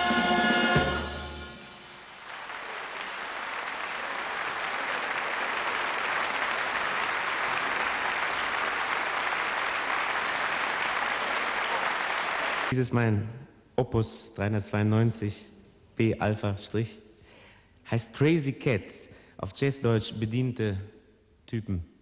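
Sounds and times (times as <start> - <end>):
audience applause: 1.9 - 12.8.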